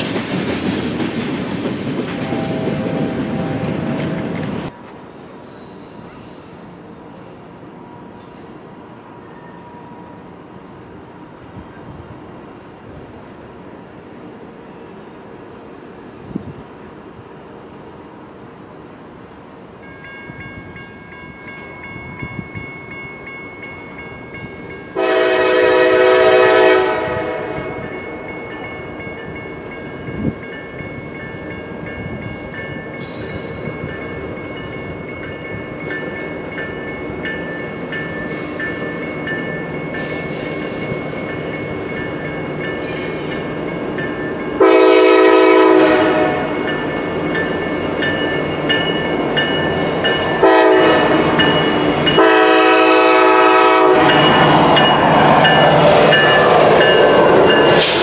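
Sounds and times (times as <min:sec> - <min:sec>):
train rumble: 0:00.0 - 0:13.6, 0:19.7 - 0:58.0
train air horn blasts: 0:02.2 - 0:03.6, 0:25.0 - 0:27.9, 0:44.6 - 0:46.7, 0:50.4 - 0:51.4, 0:52.1 - 0:54.6
crossing bell ringing: 0:07.8 - 0:10.4, 0:19.8 - 0:25.6, 0:27.4 - 0:58.0.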